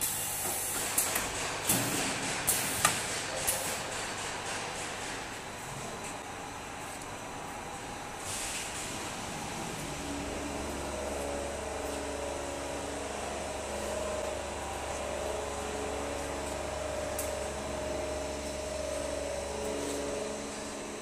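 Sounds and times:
welding machine humming: 0:08.8 - 0:21.0.

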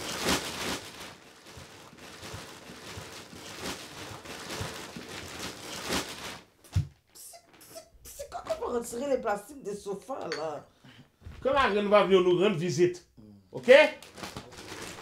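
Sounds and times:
plastic covers crinkling: 0:00.0 - 0:07.7, 0:13.6 - 0:15.0.

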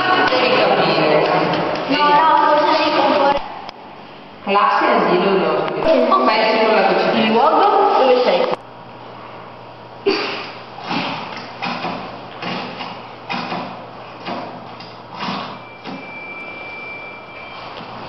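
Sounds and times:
low steady hum: 0:00.0 - 0:18.0
faint high steady tone: 0:15.6 - 0:17.8.

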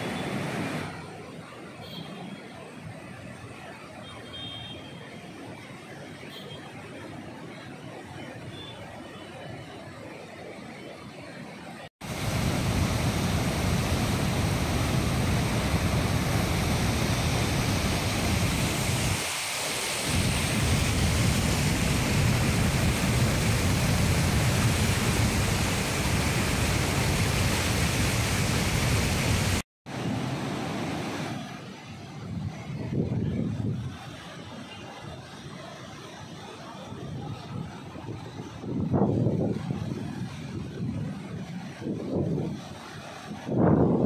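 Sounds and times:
roar of rushing flood water: 0:12.0 - 0:44.0.

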